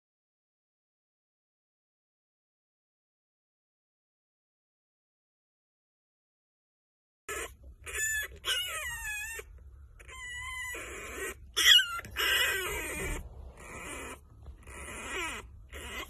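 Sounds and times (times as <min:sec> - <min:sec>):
puppy squealing: 0:07.3 - 0:16.0.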